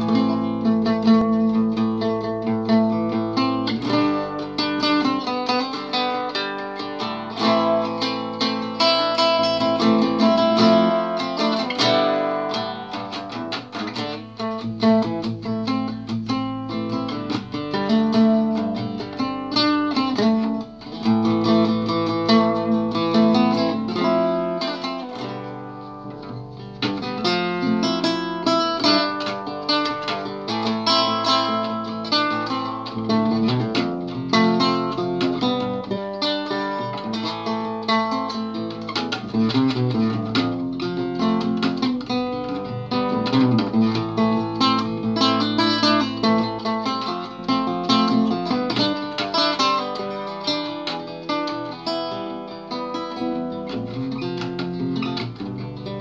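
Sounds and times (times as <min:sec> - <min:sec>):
fingerpicked classical guitar: 0:00.0 - 0:56.0.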